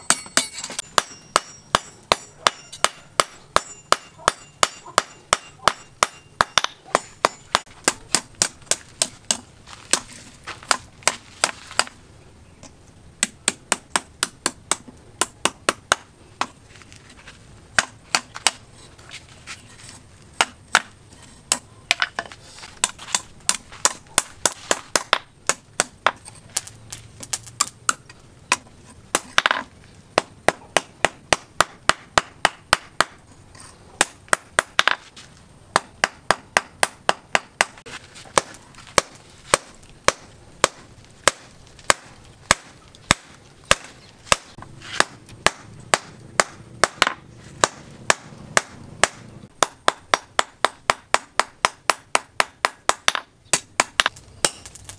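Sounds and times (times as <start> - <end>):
hammer striking steel on anvil: 0.0 - 10.0.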